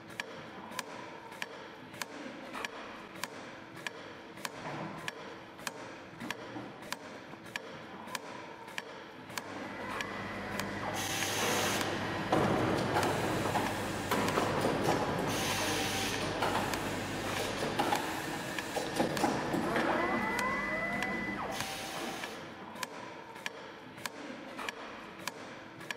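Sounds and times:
machine mechanical din: 9.5s - 22.3s
motor whine rising in pitch: 19.7s - 22.2s.

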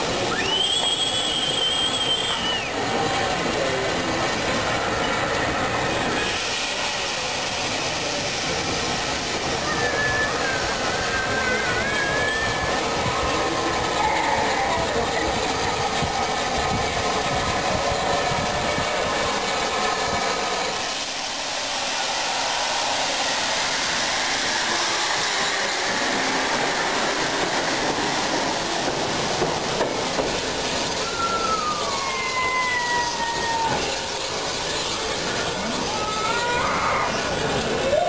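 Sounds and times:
steam hissing: 0.0s - 38.0s
steam locomotive running: 0.0s - 38.0s.

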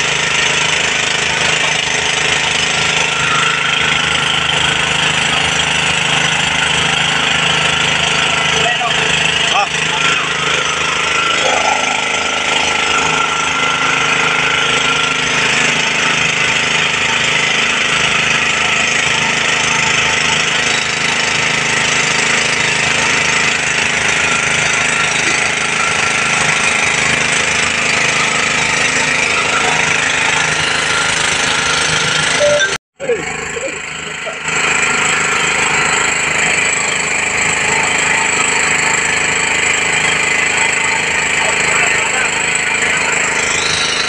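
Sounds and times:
water spraying from hoses: 0.0s - 32.4s
engine-driven water pump running: 0.0s - 44.0s.

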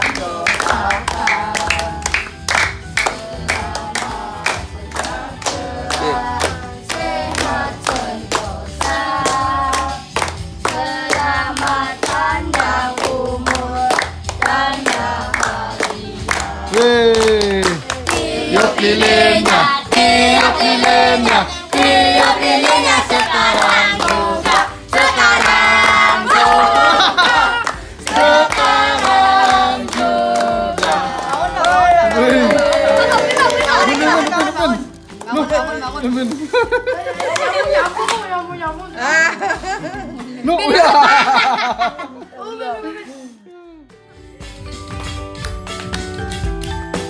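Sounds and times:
group singing: 0.0s - 35.0s
hands clapping in time: 0.0s - 35.5s, 44.4s - 47.0s.

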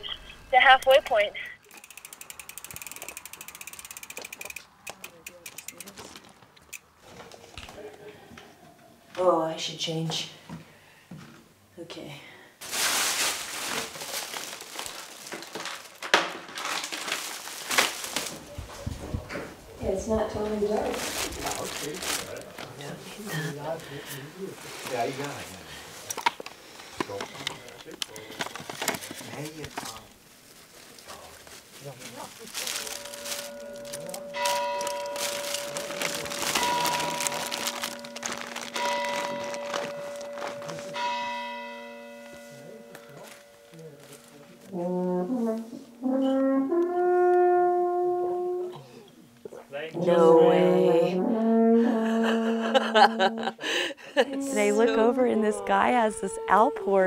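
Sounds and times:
plastic bags crinkling: 12.6s - 18.6s, 20.4s - 23.4s, 27.0s - 41.2s
bell-like ringing tones: 32.6s - 44.3s.

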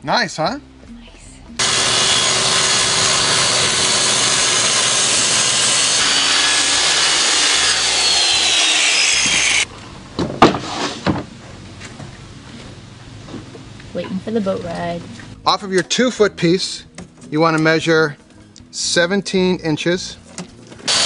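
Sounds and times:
circular saw cutting plywood: 1.6s - 9.7s.

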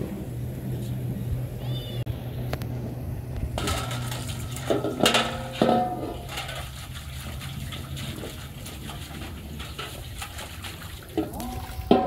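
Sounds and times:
water sloshing: 3.1s - 12.0s
metal basin clanking: 3.5s - 12.0s
metal basin scraping on concrete: 3.6s - 12.0s.

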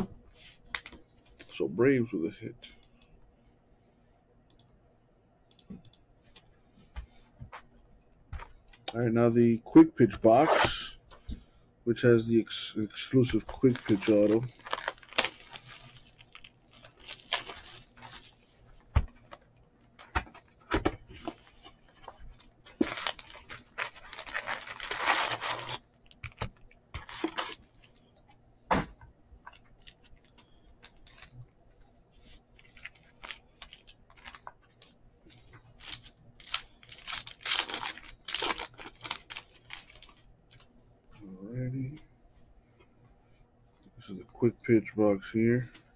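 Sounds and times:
wrapper crinkling: 13.2s - 20.4s, 22.1s - 28.0s, 32.6s - 40.7s
plastic wrappers ripping: 13.4s - 18.6s, 22.7s - 27.9s, 32.6s - 34.9s, 35.8s - 40.6s.

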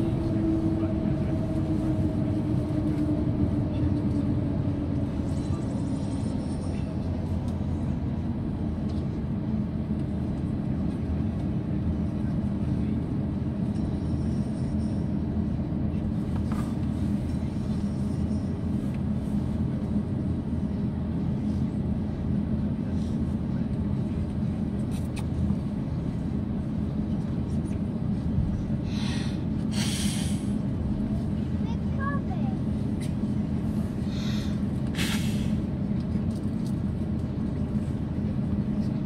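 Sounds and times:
aircraft cabin low rumble: 0.0s - 39.0s.

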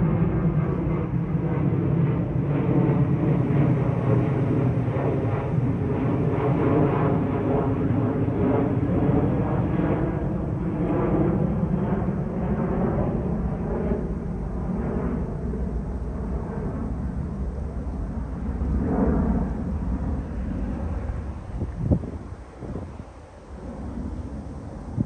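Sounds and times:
low engine rumble: 16.1s - 25.0s.

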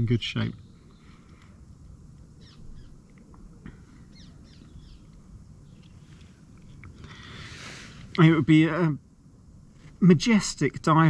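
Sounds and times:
low steady rumble: 0.0s - 11.0s
high bird chirps: 2.4s - 3.0s, 4.0s - 6.0s.

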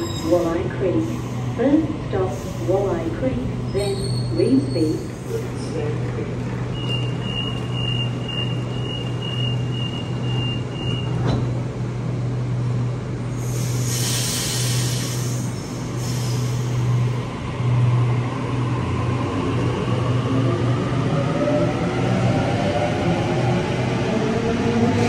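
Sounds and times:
train doors shutting: 6.7s - 12.0s, 13.4s - 17.0s
air brakes hissing: 13.4s - 16.8s.

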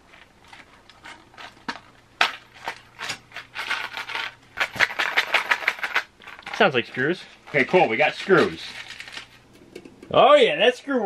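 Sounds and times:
box of screws rattling: 0.0s - 9.4s
small parts and packaging rustling: 0.0s - 10.2s.

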